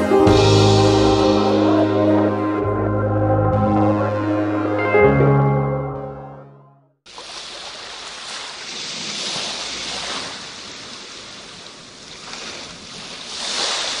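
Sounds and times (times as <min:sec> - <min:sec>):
surf breaking on a beach: 0:07.1 - 0:14.0.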